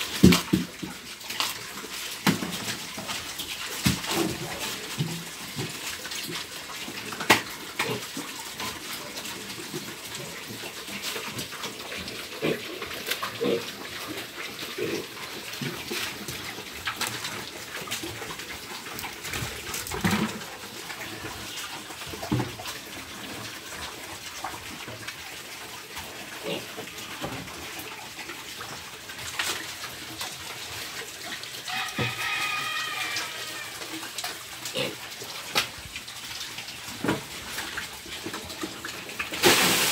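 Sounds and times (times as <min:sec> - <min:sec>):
pigs chewing and snuffling: 0:00.0 - 0:39.6
pigs grunting: 0:12.2 - 0:15.7.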